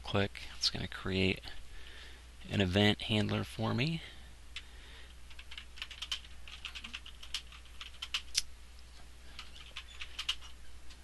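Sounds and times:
typing on computer keyboard: 0:05.3 - 0:08.4, 0:09.4 - 0:10.5.

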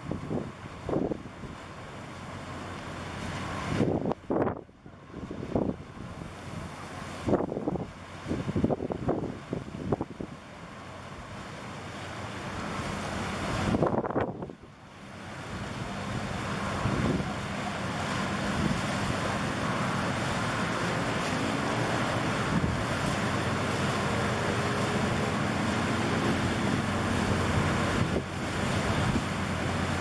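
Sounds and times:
wind buffeting microphone: 0:00.0 - 0:01.6, 0:03.5 - 0:10.4, 0:13.3 - 0:14.6, 0:15.5 - 0:17.5, 0:18.3 - 0:30.0.

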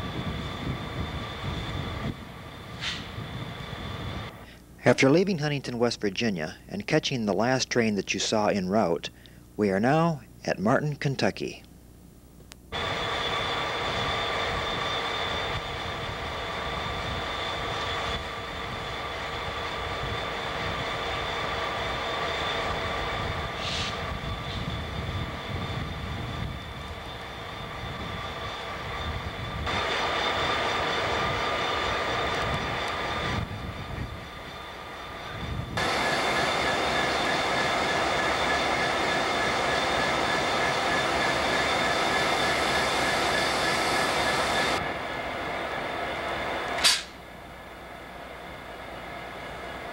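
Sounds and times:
whining tones: 0:12.7 - 0:49.9
locomotive engine idling: 0:26.9 - 0:49.9.

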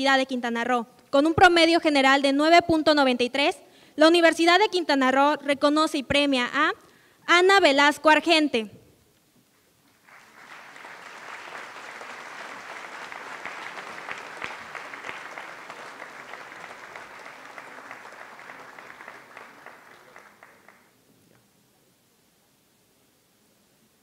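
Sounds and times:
audience applauding: 0:10.0 - 0:21.0.

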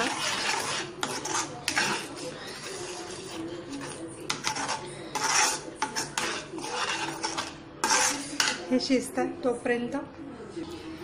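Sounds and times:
wooden spatula scraping pan: 0:00.0 - 0:08.8.

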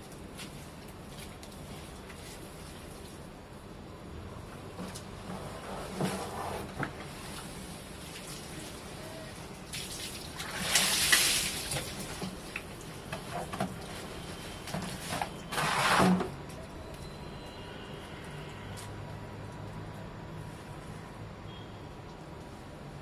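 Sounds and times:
water splashing from bucket: 0:09.6 - 0:14.0.

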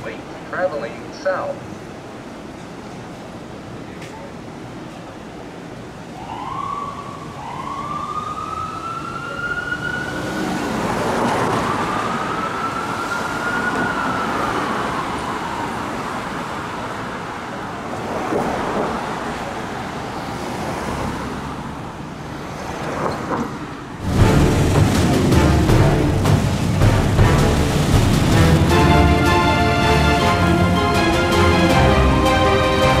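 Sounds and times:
city traffic noise: 0:00.0 - 0:33.0
ambulance siren wailing: 0:06.1 - 0:16.5, 0:28.4 - 0:33.0.

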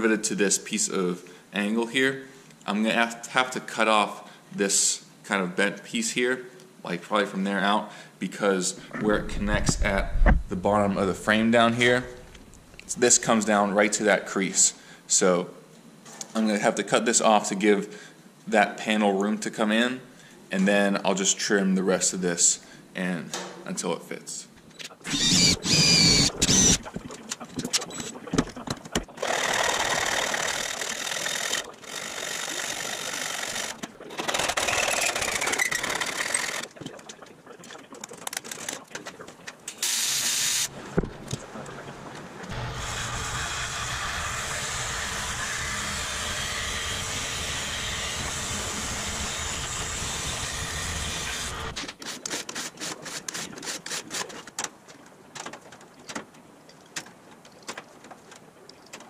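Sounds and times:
shop tool noise: 0:25.0 - 0:36.7, 0:42.5 - 0:54.5
cordless drill whining: 0:25.1 - 0:26.8, 0:29.2 - 0:36.6, 0:42.5 - 0:51.8
welding arc buzzing: 0:25.1 - 0:27.0, 0:39.7 - 0:40.7, 0:42.5 - 0:51.8.

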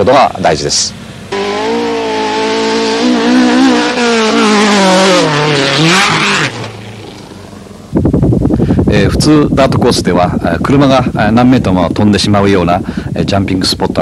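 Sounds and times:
rally car engine running hard: 0:01.0 - 0:08.0.

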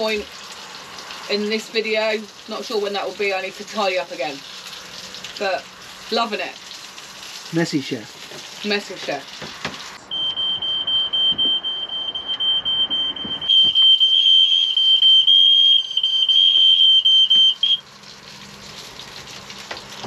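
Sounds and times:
smoke alarm tone: 0:10.1 - 0:17.9.

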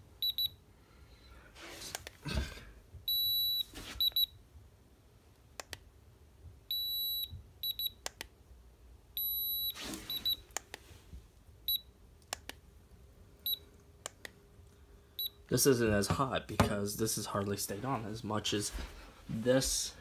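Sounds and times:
thermometer beeping: 0:00.2 - 0:00.6, 0:03.1 - 0:04.4, 0:06.7 - 0:08.1, 0:09.2 - 0:10.5, 0:11.7 - 0:11.9, 0:13.4 - 0:13.6, 0:15.2 - 0:15.4.

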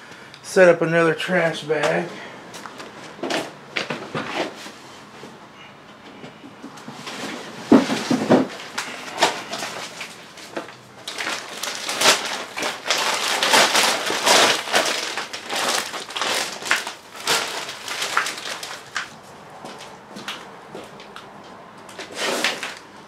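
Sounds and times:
plastic bag rustling: 0:06.9 - 0:21.2, 0:21.9 - 0:22.9.

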